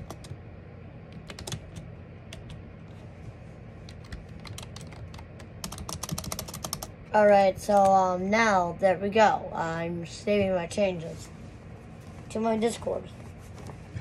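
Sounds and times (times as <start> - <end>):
typing on computer keyboard: 0.0 - 0.4, 1.1 - 2.6, 3.9 - 6.9.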